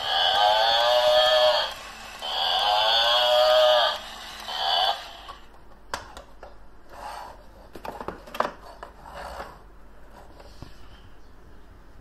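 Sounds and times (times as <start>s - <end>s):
toy cow recorded moo: 0.0s - 5.4s.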